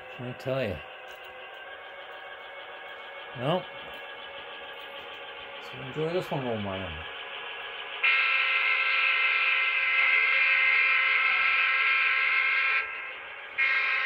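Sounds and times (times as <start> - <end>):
steady engine drone: 0.0 - 14.0
model locomotive horn blasts: 8.0 - 13.0, 13.6 - 14.0.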